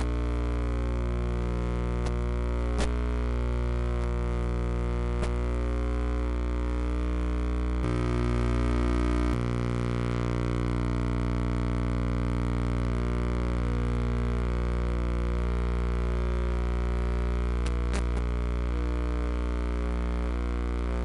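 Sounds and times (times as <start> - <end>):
low droning chords: 7.8 - 13.2.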